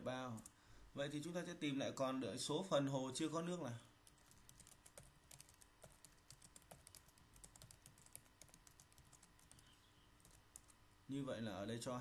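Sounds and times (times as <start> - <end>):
computer keyboard typing: 4.0 - 10.8.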